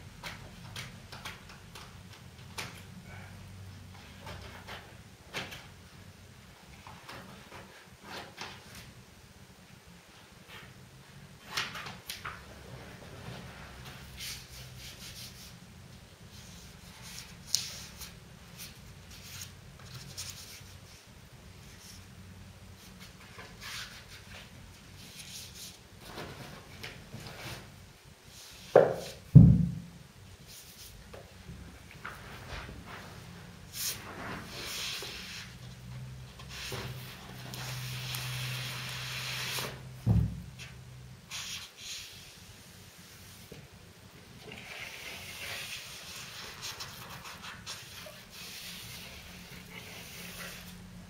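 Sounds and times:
paper rustling and scraping: 16.3s - 21.0s, 32.0s - 35.6s, 36.4s - 39.9s, 44.5s - 50.9s
loud thumps: 29.3s - 30.0s.

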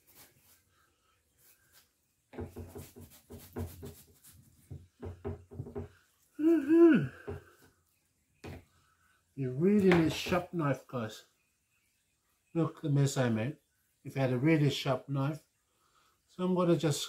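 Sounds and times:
man groaning: 6.4s - 7.3s
man grunting: 6.4s - 7.3s.

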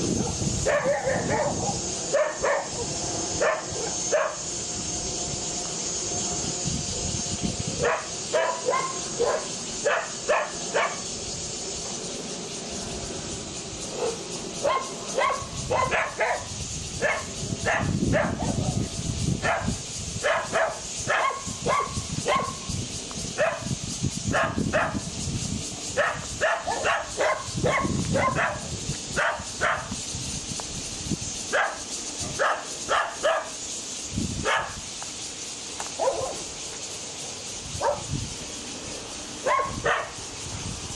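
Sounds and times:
dogs barking: 0.1s - 4.4s, 7.8s - 11.0s, 13.8s - 18.8s, 19.4s - 22.7s, 23.4s - 25.1s, 25.9s - 29.9s, 31.5s - 33.6s, 34.4s - 34.8s, 36.0s - 36.5s, 37.8s - 38.1s, 39.4s - 40.2s.

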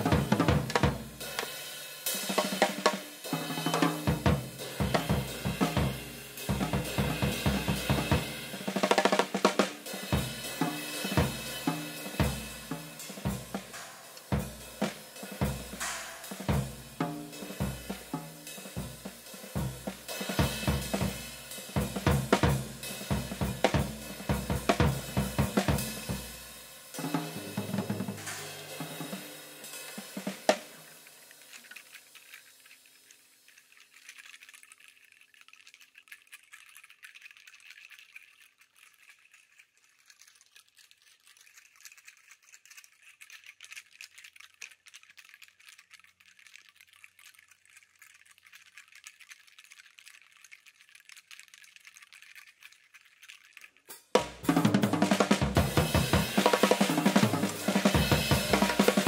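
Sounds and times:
drum kit playing: 0.0s - 31.0s, 54.1s - 59.0s
faint high crackle: 0.0s - 59.0s.

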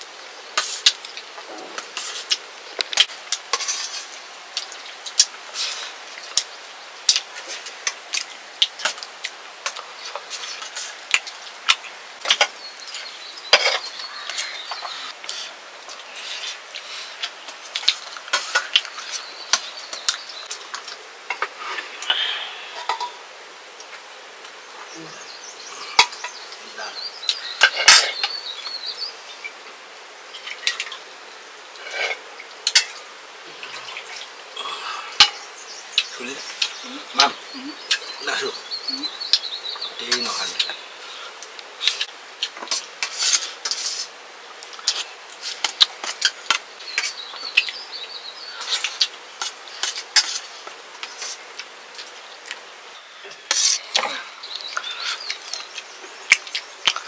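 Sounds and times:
faint insects: 0.0s - 57.0s
dishes and utensils clinking: 22.8s - 23.2s.

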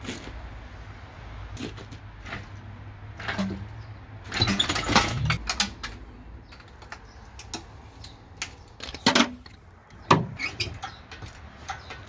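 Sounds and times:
metal clattering: 3.2s - 6.0s.

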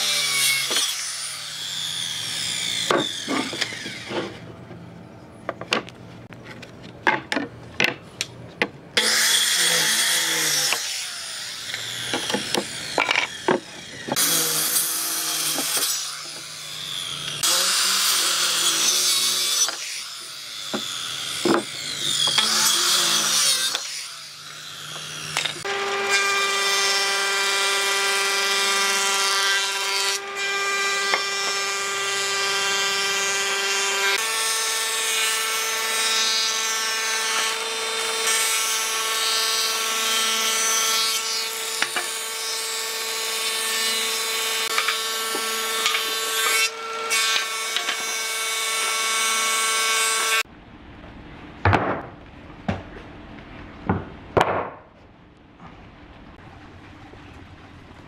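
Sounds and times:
circular saw cutting wood: 0.0s - 4.5s, 9.0s - 50.5s.

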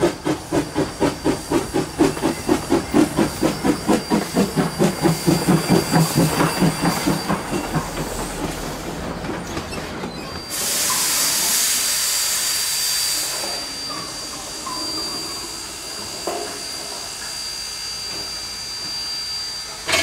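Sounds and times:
loud hiss of steam: 0.0s - 9.2s, 10.3s - 20.0s
steam locomotive rolling clatter: 0.0s - 20.0s.

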